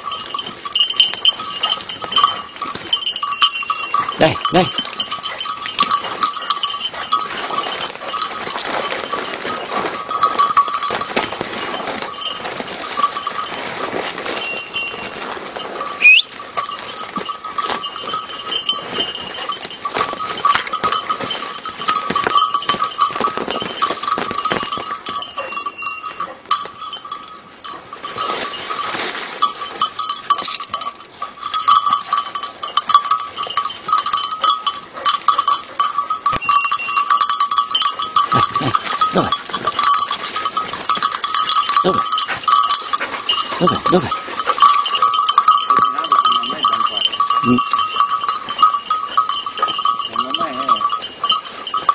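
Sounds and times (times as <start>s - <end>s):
dog bell ringing: 0.0s - 51.9s
short loud rising whistle: 16.0s - 16.3s.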